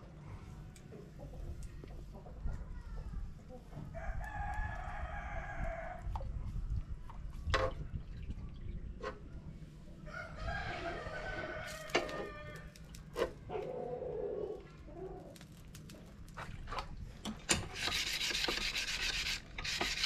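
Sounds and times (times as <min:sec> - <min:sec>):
rooster crowing: 0:10.0 - 0:12.7.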